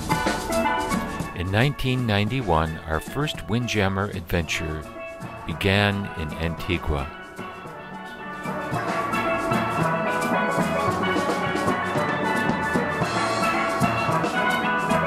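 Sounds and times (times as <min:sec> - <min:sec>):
steel band playing: 0:00.0 - 0:15.0
drums keeping beat: 0:01.2 - 0:07.2.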